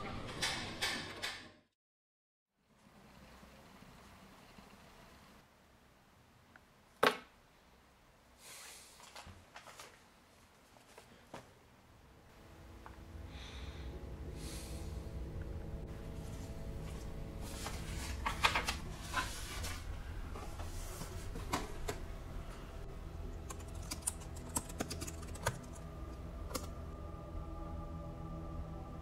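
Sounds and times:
low steady drone: 12.0s - 29.0s
laptop keyboard typing: 23.4s - 25.8s.

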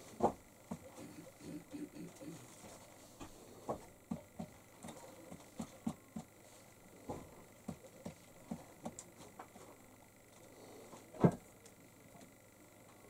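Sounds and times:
pigeon pecking cardboard: 3.7s - 6.3s, 7.6s - 9.2s.

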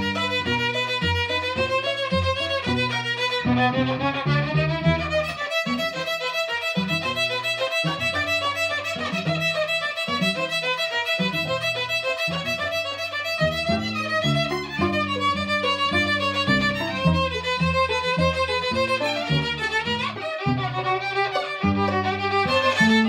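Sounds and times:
cello plucking bass line: 0.0s - 23.0s
violin melody: 0.0s - 23.0s.

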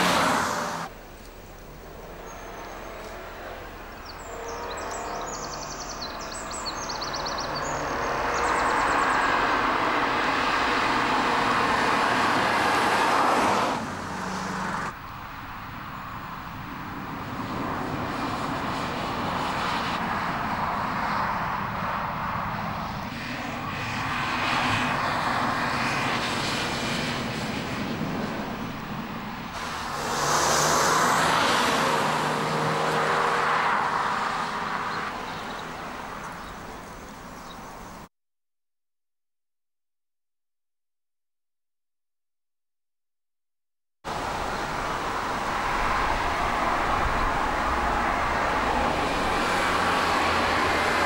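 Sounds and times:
car engine driving by: 0.0s - 15.0s, 29.5s - 37.5s.

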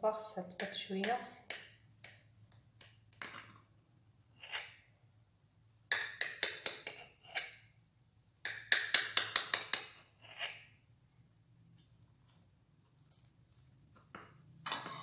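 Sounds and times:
knife clicking and scraping on plate: 5.9s - 7.6s, 8.8s - 10.7s.

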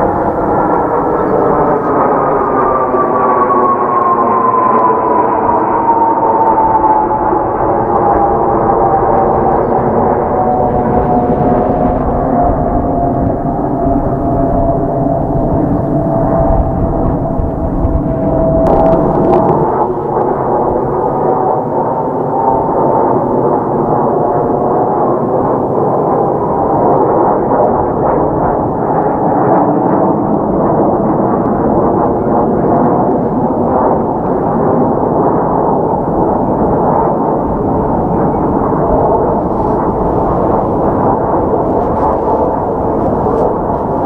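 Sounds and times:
faint jet whine: 0.0s - 44.0s
jet engines roaring overhead: 0.0s - 44.0s.

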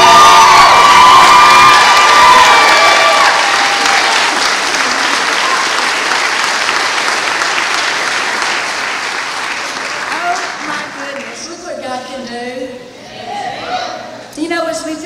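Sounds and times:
audience applauding: 0.0s - 11.8s.

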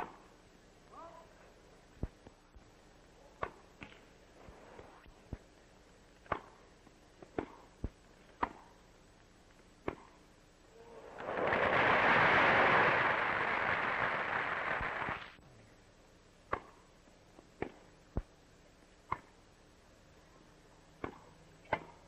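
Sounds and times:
tennis ball struck by rackets: 6.3s - 6.6s, 7.3s - 8.7s, 16.5s - 16.8s, 19.1s - 19.3s, 21.0s - 22.0s
crowd applauding: 11.0s - 15.4s.

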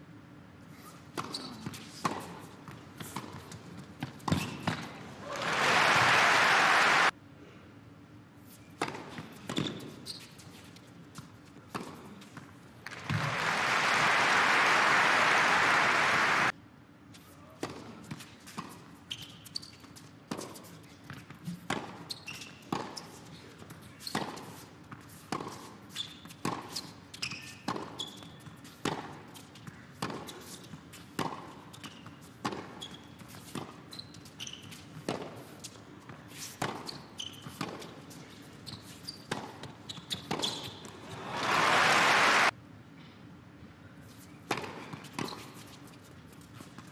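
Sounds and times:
crowd applause: 5.2s - 7.1s, 12.9s - 16.5s, 41.0s - 42.5s
tennis ball hits and bounces: 27.6s - 28.0s, 44.5s - 45.5s.

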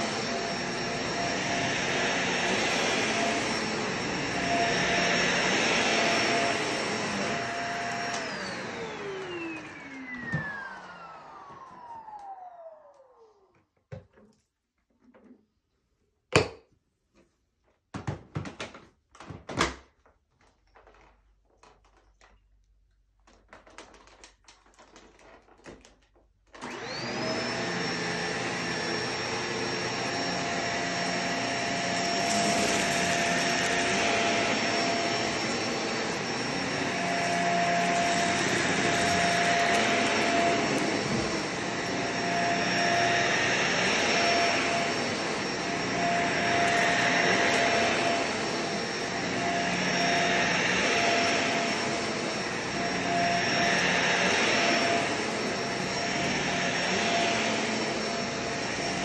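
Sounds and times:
vacuum cleaner motor whine: 0.0s - 14.2s, 26.5s - 59.0s.

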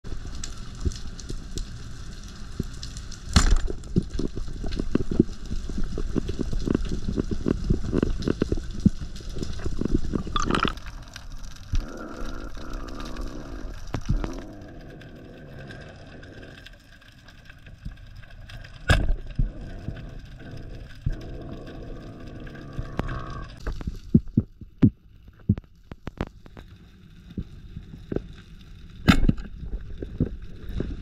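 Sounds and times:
underwater clicks and knocks: 18.8s - 19.6s, 29.0s - 31.0s.

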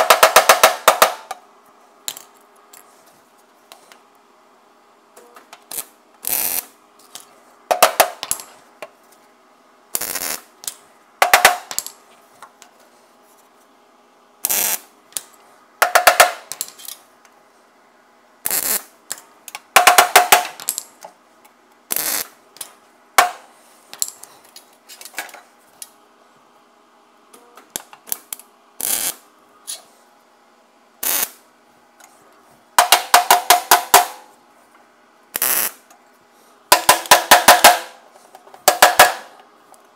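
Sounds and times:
welder crackling tack welds: 5.7s - 6.8s, 10.0s - 11.9s, 14.4s - 15.3s, 18.4s - 18.9s, 21.9s - 22.4s, 28.1s - 29.2s, 31.0s - 31.4s, 35.4s - 35.8s.

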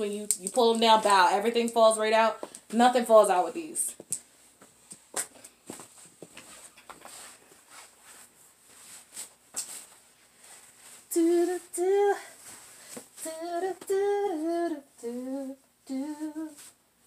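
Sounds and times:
faint rustles and taps: 4.0s - 10.0s.

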